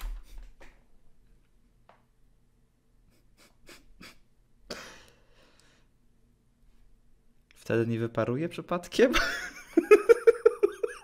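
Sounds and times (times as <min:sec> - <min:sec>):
man stifling laughter: 0:03.1 - 0:04.9, 0:09.1 - 0:11.0
breathy exhale: 0:04.7 - 0:05.9.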